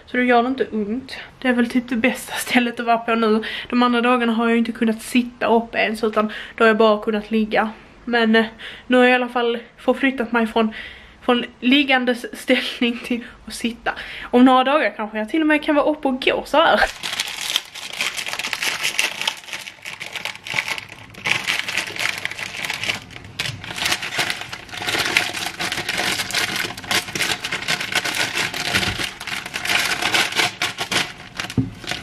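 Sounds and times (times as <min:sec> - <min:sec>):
plastic packet crinkling: 0:16.8 - 0:32.0.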